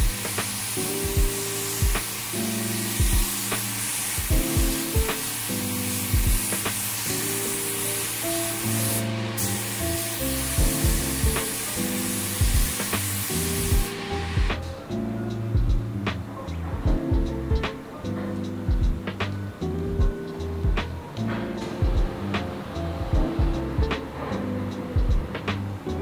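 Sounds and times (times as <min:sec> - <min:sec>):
spray gun hissing: 0:00.0 - 0:14.7
background music with steady beat: 0:00.0 - 0:26.0.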